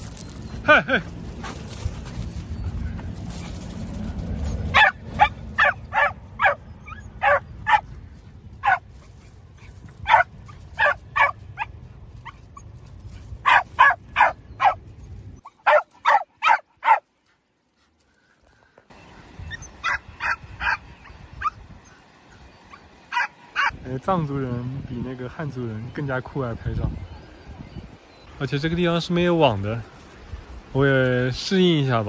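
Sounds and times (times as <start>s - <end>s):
dog barking: 4.7s - 7.9s, 8.6s - 8.8s, 10.1s - 11.7s, 13.4s - 14.8s, 15.6s - 17.0s, 19.8s - 20.8s, 23.1s - 23.7s.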